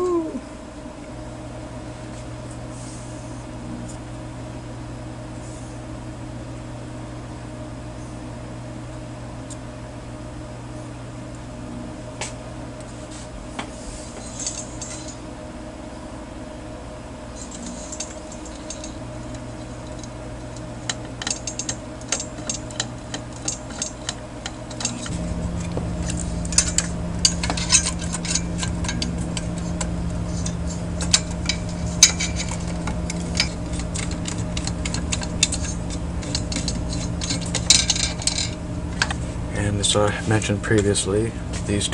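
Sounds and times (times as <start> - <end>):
steady low hum: 0.0 - 41.9
clinks of handled metal parts: 14.2 - 15.2, 17.4 - 25.1, 26.0 - 39.1.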